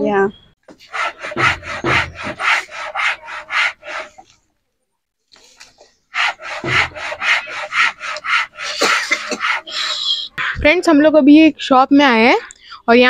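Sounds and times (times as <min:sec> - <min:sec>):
hand tool scraping wood: 0:00.7 - 0:04.3, 0:06.1 - 0:10.2.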